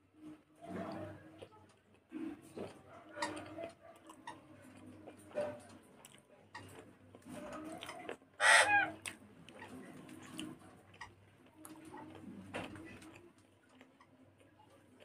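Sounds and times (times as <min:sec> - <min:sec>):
loud bird call: 0:08.4 - 0:08.9.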